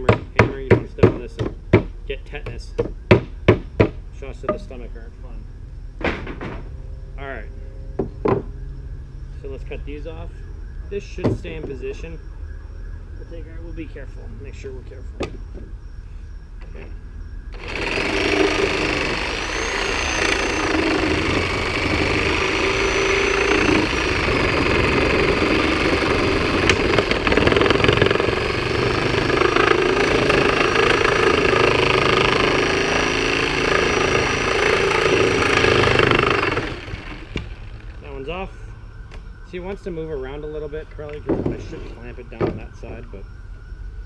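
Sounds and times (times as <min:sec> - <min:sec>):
reciprocating saw cutting nails: 0:17.6 - 0:37.6.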